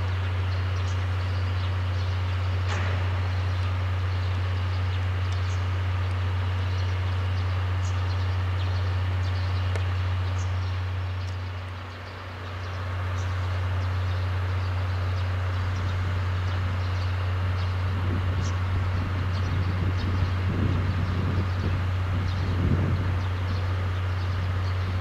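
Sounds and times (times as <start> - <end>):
locomotive engine idling: 0.0 - 25.0.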